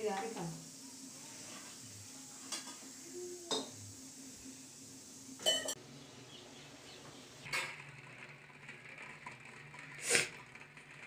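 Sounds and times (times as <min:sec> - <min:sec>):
steel kitchenware clinking: 0:05.4 - 0:05.8.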